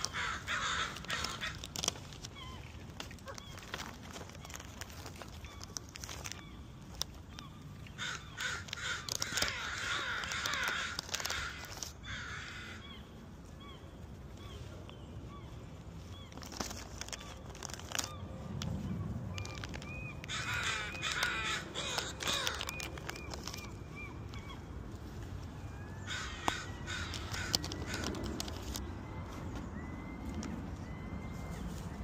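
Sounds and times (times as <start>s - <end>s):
crows cawing: 0.0s - 2.0s, 7.9s - 13.0s, 20.2s - 22.8s, 26.0s - 28.1s.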